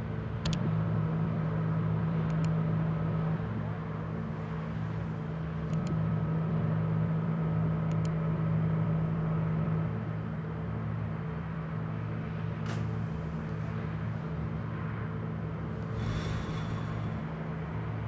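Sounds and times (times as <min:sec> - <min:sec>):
low droning hum: 0:00.0 - 0:18.0
faint high whine: 0:11.7 - 0:18.0.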